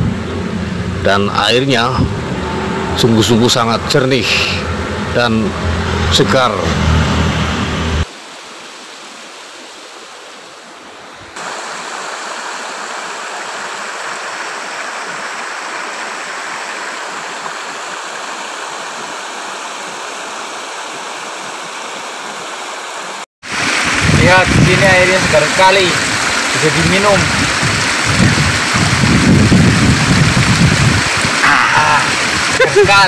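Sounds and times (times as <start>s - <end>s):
stream rushing over rocks: 8.0s - 33.0s.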